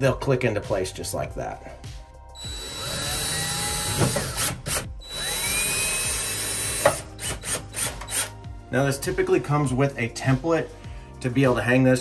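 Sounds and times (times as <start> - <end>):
cordless drill motor whining: 2.4 - 8.3.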